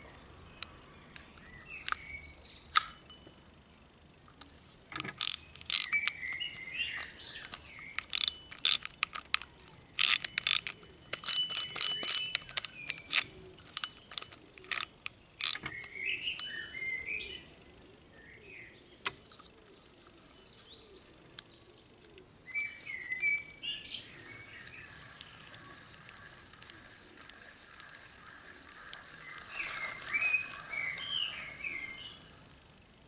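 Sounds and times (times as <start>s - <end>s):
birds chirping: 0.0s - 4.3s, 5.3s - 33.0s
fishing reel clicking: 5.2s - 6.2s, 7.0s - 15.7s.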